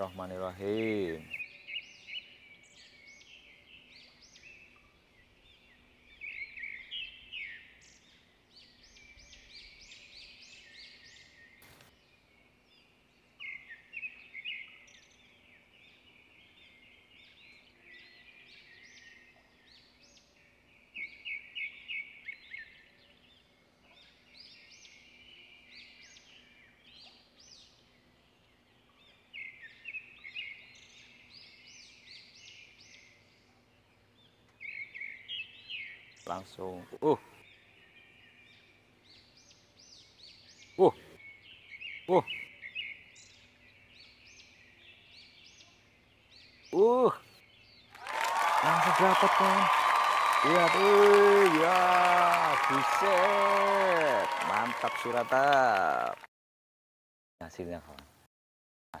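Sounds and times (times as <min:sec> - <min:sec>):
birds chirping: 0:00.0 - 0:56.3.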